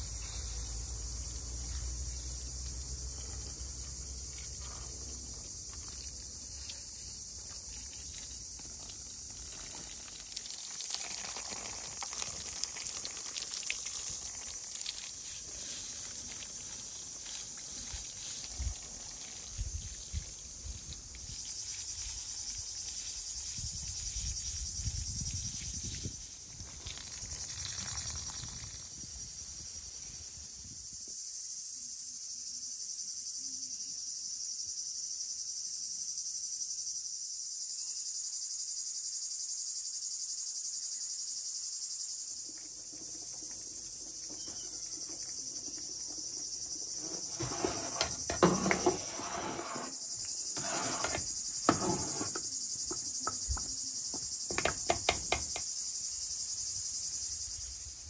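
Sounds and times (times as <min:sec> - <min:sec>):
insects chirring: 0:00.0 - 0:58.0
brushing on wet wooden table: 0:14.4 - 0:22.3, 0:46.9 - 0:52.5
sharp clicks and knocks: 0:51.0 - 0:55.7.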